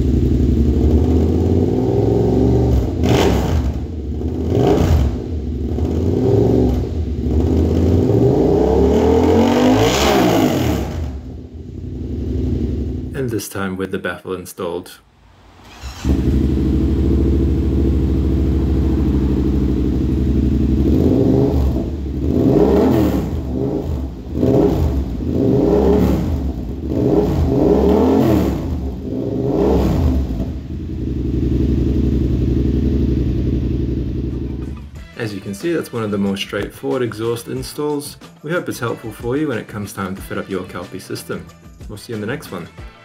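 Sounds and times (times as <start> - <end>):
motorcycle engine idling and revving: 0.0 - 13.2, 15.3 - 35.0.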